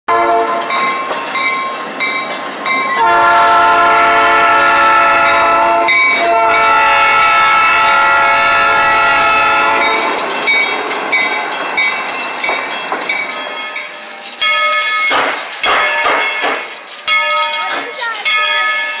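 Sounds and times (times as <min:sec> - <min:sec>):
locomotive air horn blasts: 0:00.1 - 0:00.7, 0:03.0 - 0:10.0
crossing bell dinging: 0:00.1 - 0:19.0
passing train rumble: 0:00.1 - 0:19.0.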